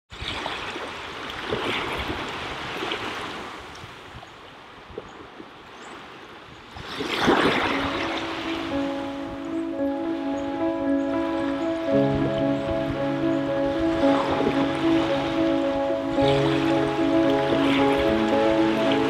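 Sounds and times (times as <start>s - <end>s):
sea waves washing on beach: 0.1s - 19.0s
held music notes: 7.8s - 19.0s.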